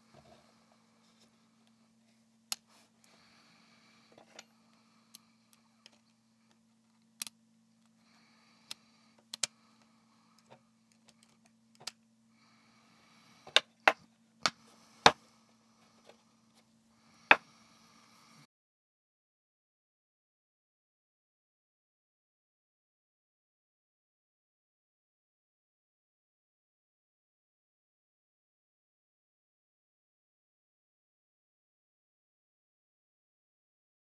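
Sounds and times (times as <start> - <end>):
faint steady hum: 0.0 - 18.5.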